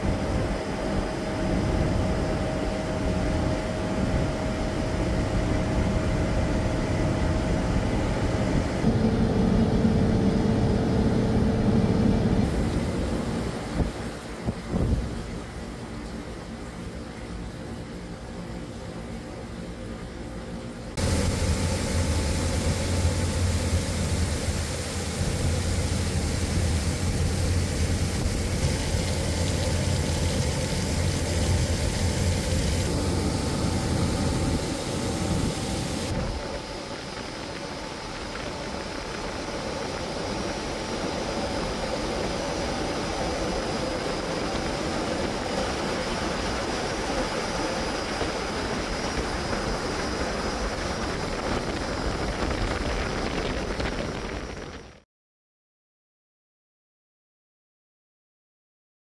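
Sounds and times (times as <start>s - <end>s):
machine hum: 0.0s - 54.8s
spray water rushing and splashing: 12.4s - 16.1s, 21.0s - 54.2s
deep rumble: 20.9s - 36.8s.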